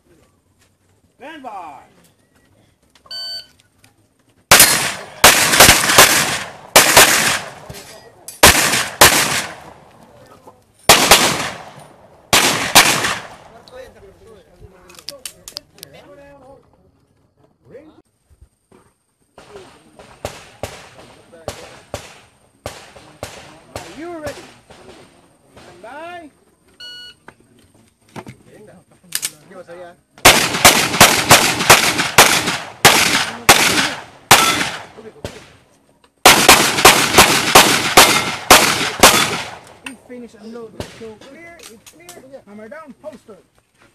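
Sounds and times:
pistol shots with echo: 0:04.5 - 0:07.8, 0:08.4 - 0:09.8, 0:10.9 - 0:13.6, 0:20.0 - 0:25.7, 0:30.2 - 0:35.5, 0:36.2 - 0:39.8.

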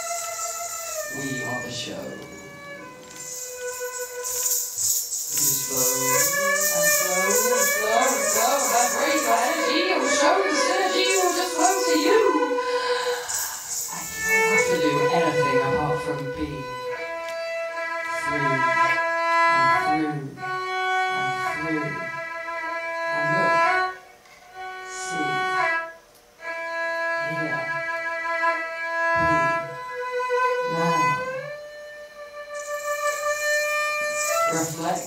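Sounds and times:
low wavering sound: 0:00.0 - 0:17.0
erhu bowed notes: 0:00.0 - 0:35.0.

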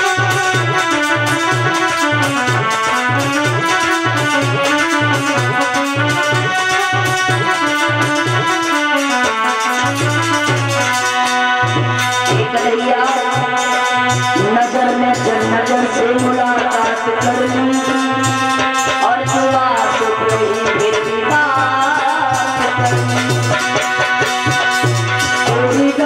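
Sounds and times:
keyboard: 0:00.0 - 0:26.0
steady drum beat: 0:00.0 - 0:26.0
woman singing into a microphone: 0:12.2 - 0:24.4, 0:25.3 - 0:26.0.

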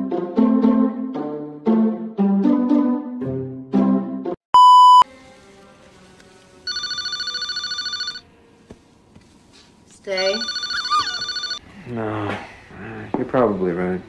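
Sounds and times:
electronic beep: 0:04.6 - 0:05.0
telephone ringing: 0:06.7 - 0:08.2, 0:10.2 - 0:11.6.

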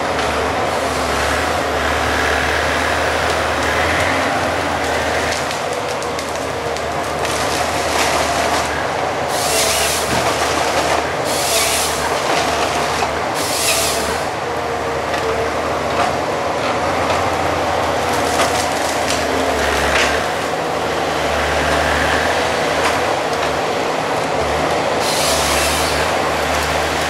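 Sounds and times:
forestry harvester running: 0:00.0 - 0:27.0
wood cracking and snapping: 0:03.2 - 0:08.8, 0:09.6 - 0:11.1, 0:18.0 - 0:20.5.

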